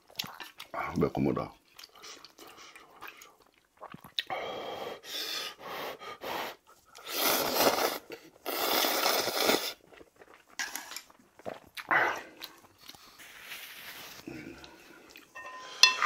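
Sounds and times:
noodles being slurped: 6.5s - 15.3s.

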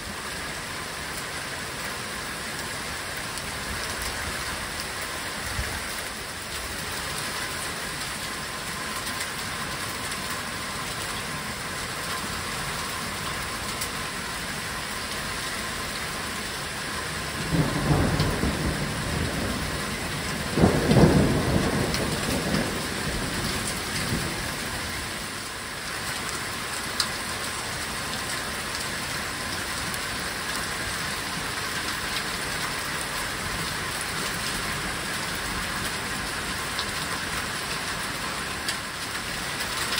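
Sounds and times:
heavy rain pouring: 0.0s - 39.9s
thunder rumbling: 17.3s - 25.0s.

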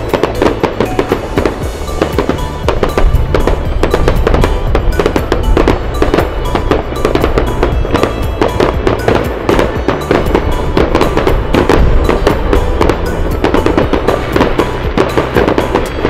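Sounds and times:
fireworks bangs and crackles: 0.0s - 16.0s
music playing: 0.0s - 16.0s.

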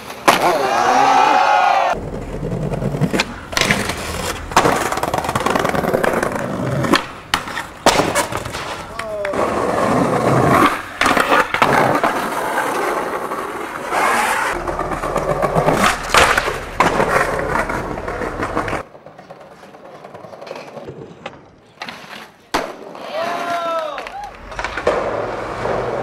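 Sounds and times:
skateboard wheels rolling on concrete: 0.0s - 26.0s
skateboard grinding on ledge: 2.0s - 18.9s
skateboard pop and landing clacks: 3.0s - 9.4s, 15.6s - 17.8s, 22.5s - 26.0s.

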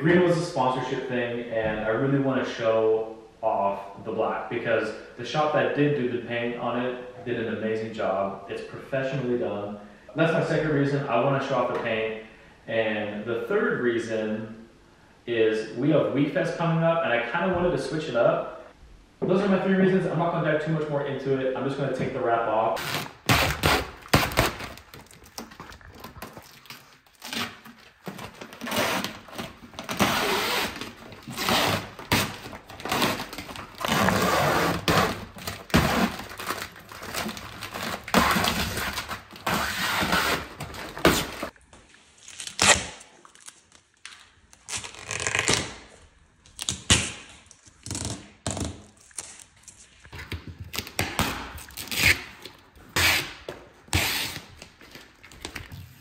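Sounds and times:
vinyl film peeling off car: 22.8s - 41.6s, 42.2s - 45.9s.

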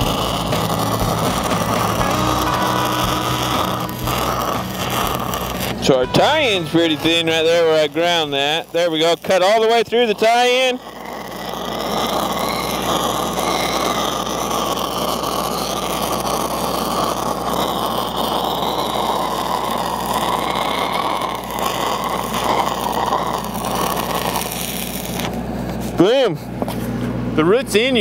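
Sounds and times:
low hum: 0.0s - 9.0s
stick welding arc: 0.0s - 26.2s.

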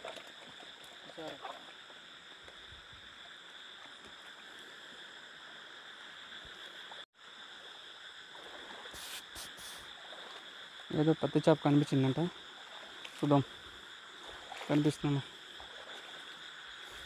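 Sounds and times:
feet wading through shallow water: 0.0s - 5.0s, 10.0s - 11.0s, 12.0s - 17.0s
high-pitched hiss: 2.2s - 17.0s.

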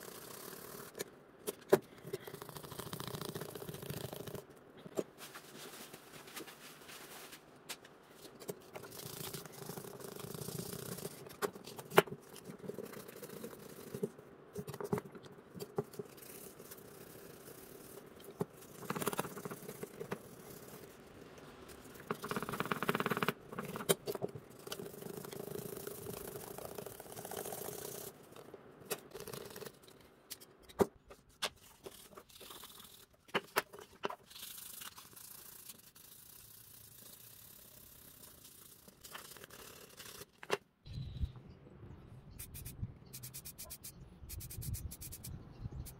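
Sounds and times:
scraping and rubbing: 4.0s - 40.6s
faint steady hum: 40.8s - 45.9s.

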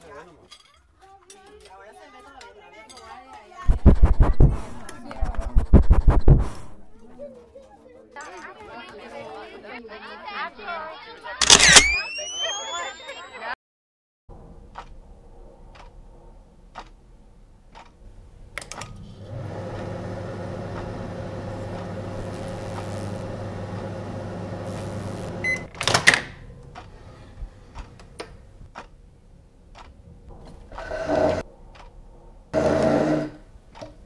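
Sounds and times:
something dragged across floor: 3.7s - 6.9s
short beep: 11.7s - 13.4s
microwave oven humming: 19.2s - 25.7s.

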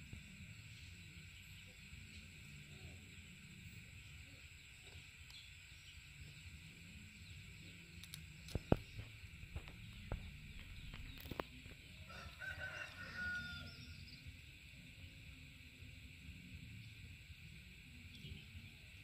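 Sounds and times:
seed pod clicking and snapping: 8.0s - 11.6s
rooster crowing: 11.9s - 14.2s.

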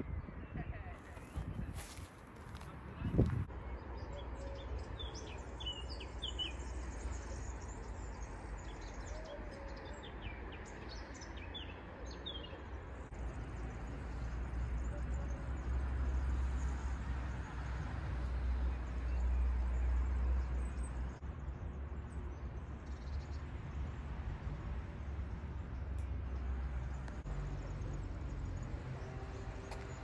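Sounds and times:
wind buffeting microphone: 0.0s - 3.5s.

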